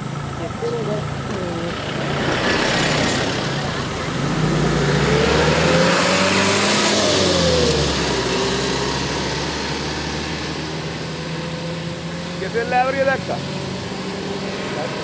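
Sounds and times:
vehicles driving past: 0:00.0 - 0:15.0.

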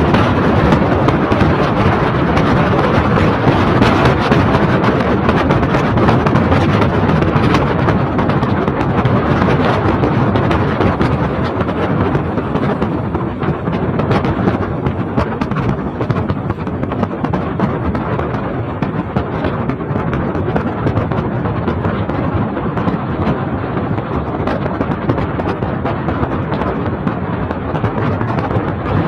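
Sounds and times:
car road noise on wet road: 0:00.0 - 0:29.0
wind buffeting microphone: 0:00.0 - 0:29.0.

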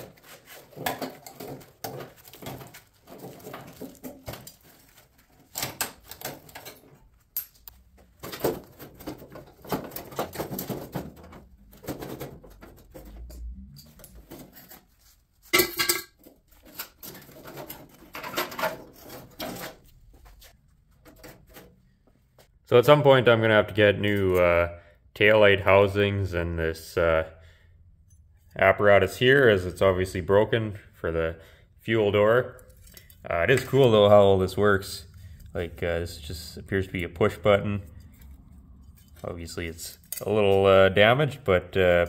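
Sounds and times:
metal parts clunking and scraping: 0:00.0 - 0:22.2, 0:32.6 - 0:40.8.

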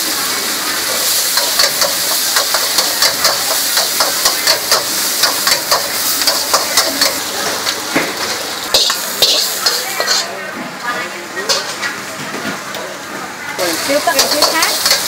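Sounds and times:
sizzling hiss: 0:00.0 - 0:10.4, 0:13.6 - 0:15.0
spatula scraping a wok: 0:08.2 - 0:10.3, 0:13.7 - 0:15.0.

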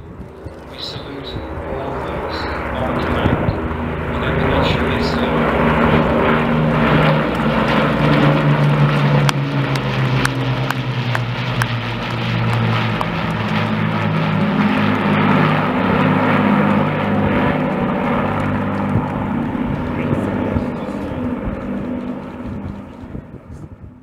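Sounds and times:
propeller aircraft engines droning: 0:00.0 - 0:24.0.

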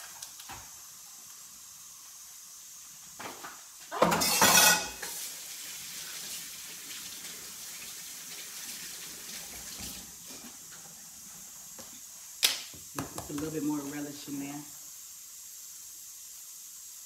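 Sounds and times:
faucet water splashing into sink: 0:04.0 - 0:10.2.

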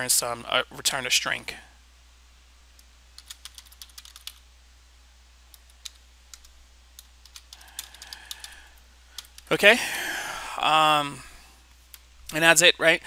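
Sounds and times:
keyboard typing: 0:03.2 - 0:04.4, 0:05.5 - 0:09.5.

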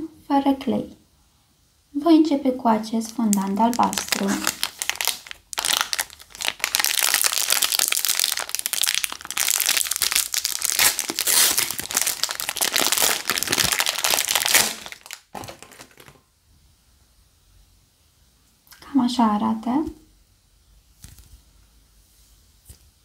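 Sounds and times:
plastic wrapper crinkling: 0:03.0 - 0:16.3.

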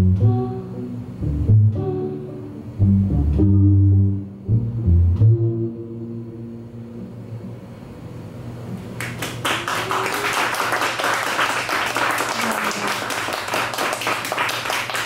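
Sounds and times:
audience applause: 0:09.0 - 0:15.0.

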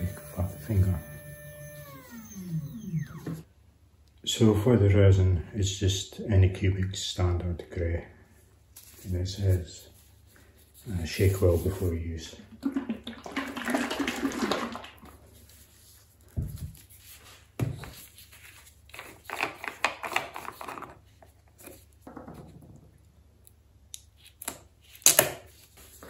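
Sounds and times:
screw cap rustling and scraping: 0:17.8 - 0:22.0.

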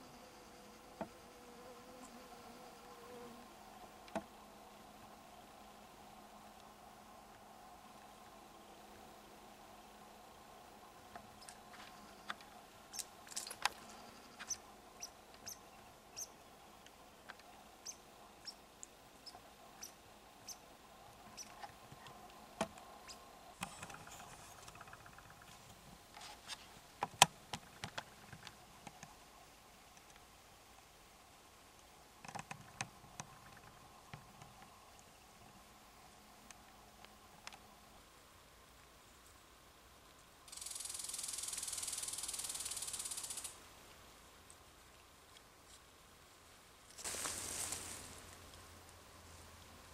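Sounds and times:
small animal chirping: 0:17.8 - 0:18.6, 0:19.2 - 0:20.6.

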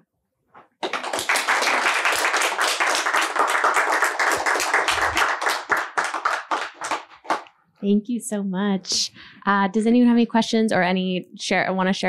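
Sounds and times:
audience applauding: 0:00.8 - 0:07.5.

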